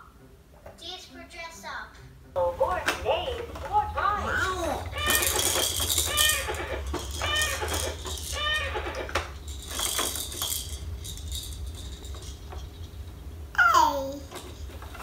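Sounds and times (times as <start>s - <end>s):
plastic toy clicking and clattering: 2.8s - 12.6s
baby squealing: 4.2s - 9.2s, 13.6s - 14.2s.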